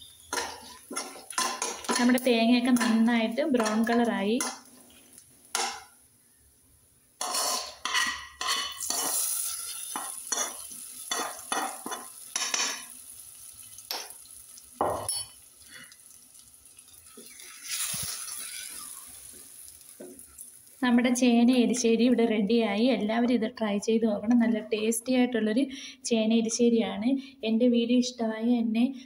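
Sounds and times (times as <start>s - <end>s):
sizzling: 0.0s - 22.9s
wooden spoon stirring: 0.2s - 2.2s
metal spoon scraping a wok: 7.2s - 12.8s.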